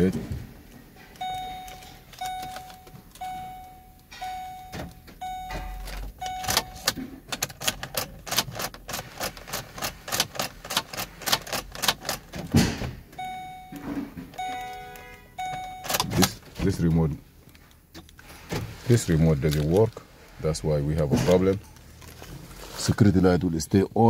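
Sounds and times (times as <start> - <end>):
car warning chime dinging: 1.1 - 7.2, 13.1 - 17.0
ignition key clicks: 1.1 - 12.4, 13.2 - 16.4.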